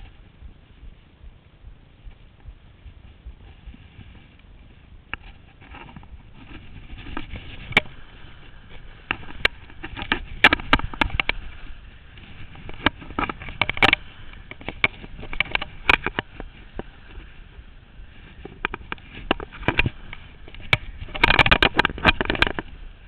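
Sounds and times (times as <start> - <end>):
sharp clicks and knocks: 2.0 - 17.4, 18.4 - 22.8.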